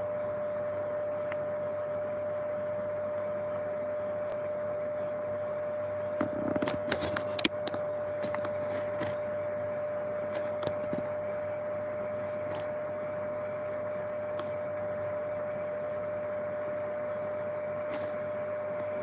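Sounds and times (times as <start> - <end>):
microphone handling clicks: 6.2 - 9.2.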